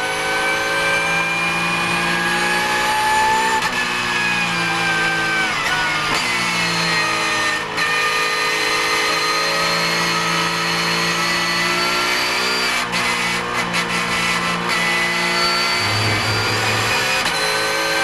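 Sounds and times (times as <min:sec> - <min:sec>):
race car engine running: 0:15.6 - 0:18.0.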